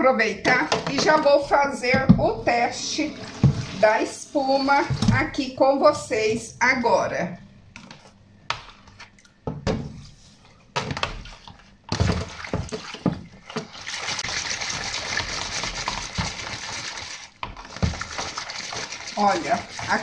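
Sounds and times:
hand sloshing soapy water: 0.5 - 5.5, 11.2 - 20.0
plastic basin knocks: 1.9 - 2.4.

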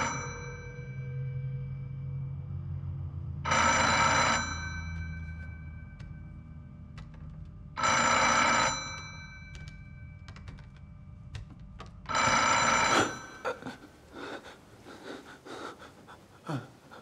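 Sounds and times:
low steady hum: 0.0 - 17.0
telephone ringing: 7.8 - 9.4, 12.1 - 13.6.

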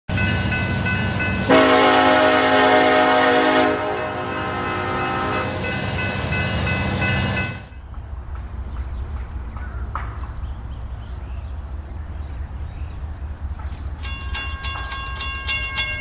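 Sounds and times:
train horn chord: 1.4 - 6.2.

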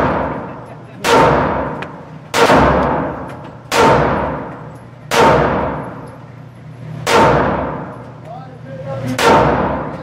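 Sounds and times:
pistol shots with echo: 0.0 - 4.5, 5.1 - 6.0, 7.0 - 7.9, 9.2 - 9.9.

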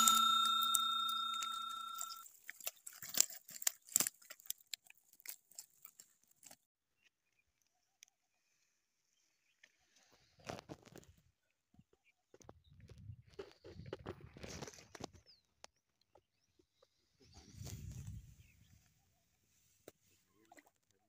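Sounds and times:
bell-like ding: 0.0 - 2.2.

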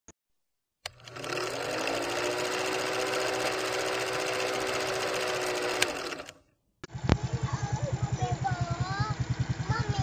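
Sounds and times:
film projector clattering: 0.8 - 6.4
motor hum: 0.8 - 10.0.

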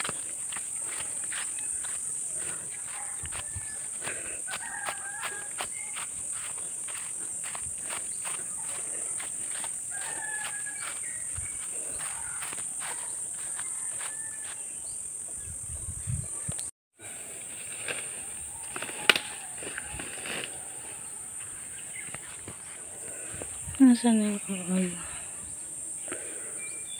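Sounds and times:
footsteps through grass: 0.0 - 14.7, 17.4 - 24.0
high-pitched insect chorus: 0.0 - 26.9.

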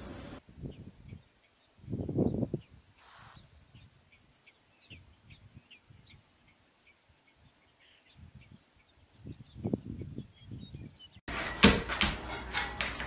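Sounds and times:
wind rumble on microphone: 0.0 - 6.3, 7.4 - 11.2
high bird chirps: 0.6 - 11.2
brief hiss: 3.0 - 3.4.

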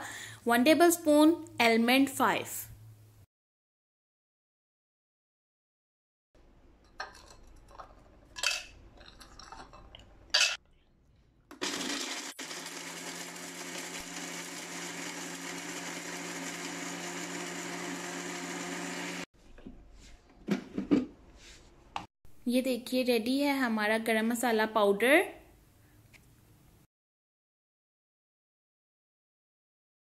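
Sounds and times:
spice grinder running: 11.5 - 19.3.

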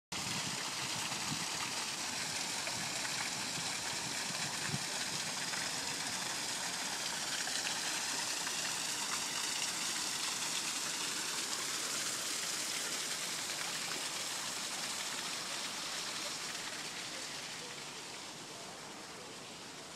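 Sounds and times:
running water rushing: 0.1 - 19.9.

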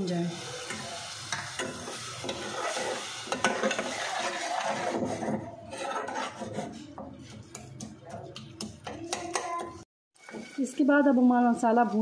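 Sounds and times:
food sizzling in hot oil: 0.0 - 6.9, 9.6 - 12.0
spoon stirring and scraping pot: 0.3 - 11.9.

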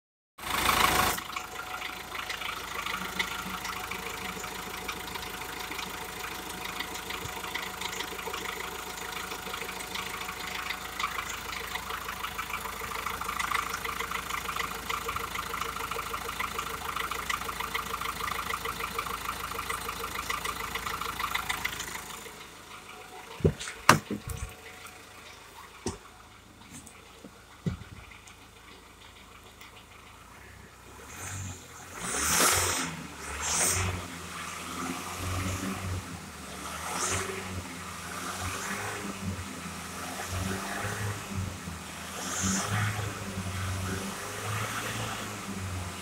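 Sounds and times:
diesel engine idling: 0.4 - 36.6
sharp knocks: 23.4 - 24.5.

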